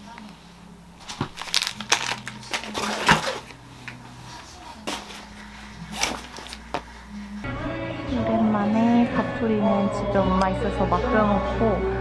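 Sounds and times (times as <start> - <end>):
plastic wrapper crinkling: 1.0 - 4.0, 4.9 - 7.0
fabric backpack rustling: 1.0 - 7.4.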